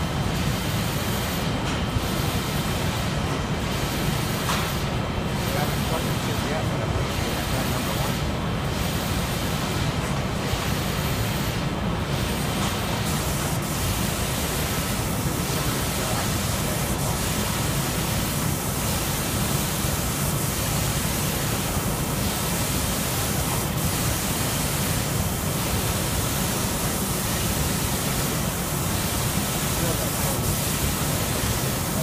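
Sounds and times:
spray booth air rushing: 0.0s - 32.0s
spray guns hissing: 12.3s - 32.0s.

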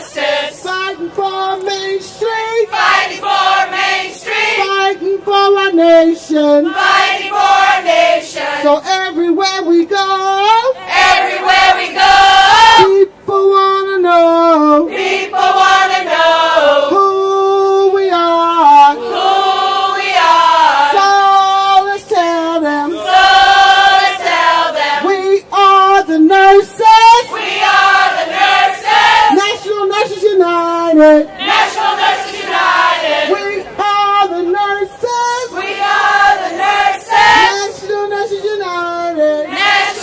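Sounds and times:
crowd chanting in unison: 0.0s - 0.7s, 2.7s - 4.7s, 6.7s - 8.7s, 10.8s - 12.9s, 14.9s - 16.9s, 19.0s - 21.0s, 22.9s - 25.1s, 27.2s - 29.4s, 31.2s - 33.8s, 35.4s - 37.6s, 39.4s - 40.0s.

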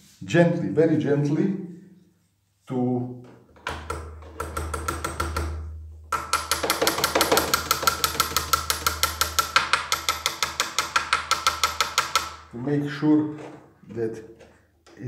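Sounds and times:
small hammer tapping metal: 3.6s - 12.5s.

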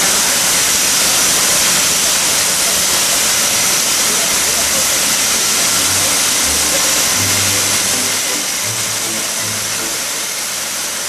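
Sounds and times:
loud steady hiss: 0.0s - 11.0s
radio music bass notes: 5.6s - 10.3s.

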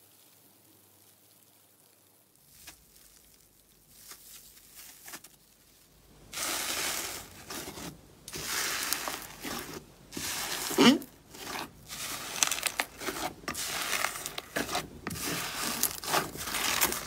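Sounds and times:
slime popping and squelching: 6.3s - 17.0s.

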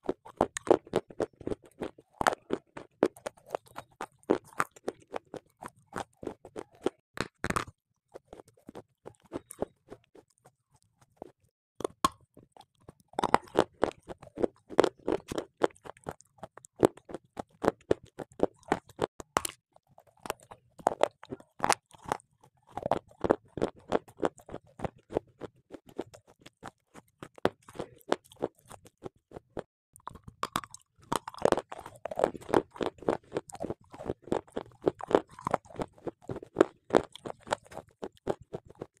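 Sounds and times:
person crunching hard block: 0.1s - 9.8s, 13.1s - 16.2s, 30.2s - 38.9s.

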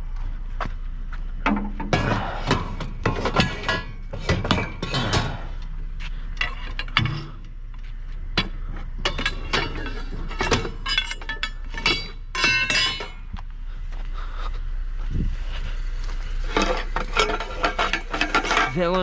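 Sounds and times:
scrap metal clanking: 1.4s - 7.6s, 8.3s - 13.3s, 15.5s - 19.0s.

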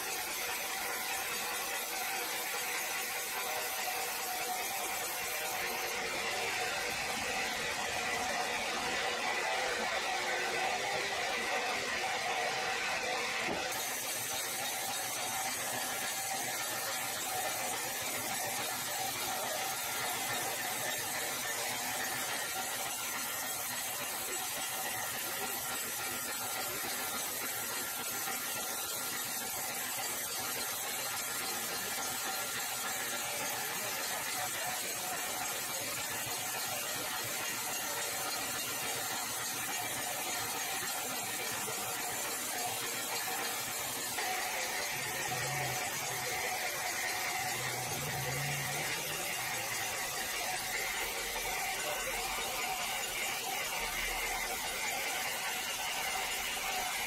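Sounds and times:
band saw cutting log: 13.4s - 23.3s.

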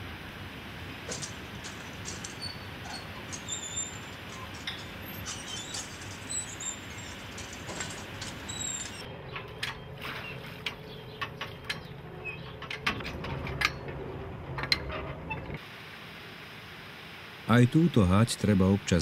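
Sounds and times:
high bird chirps: 2.2s - 9.1s.

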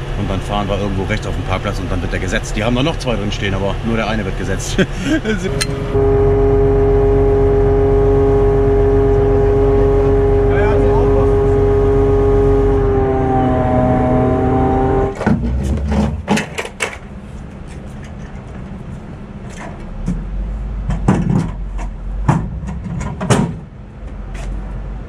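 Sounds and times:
hydraulic crane whine: 0.0s - 16.3s
metallic knocks and clanks: 19.5s - 23.7s.

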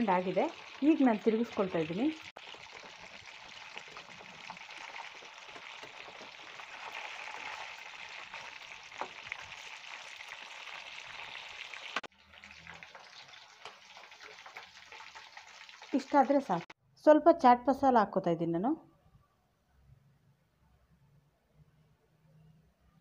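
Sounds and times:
food deep-frying in oil: 0.0s - 16.8s.

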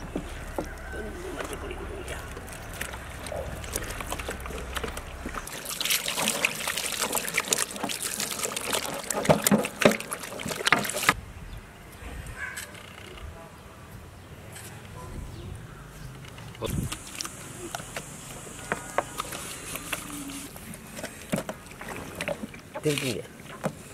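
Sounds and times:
wet squelching and slapping: 0.6s - 11.2s, 16.7s - 23.2s.

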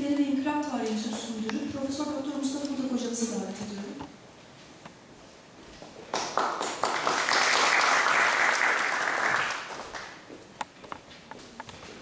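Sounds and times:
audience applauding: 6.1s - 10.2s.

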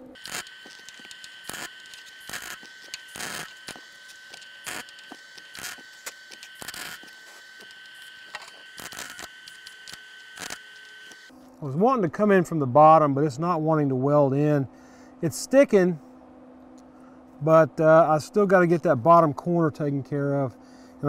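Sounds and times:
welder arc crackling and popping: 0.0s - 11.3s
steady high whine: 0.0s - 14.6s.

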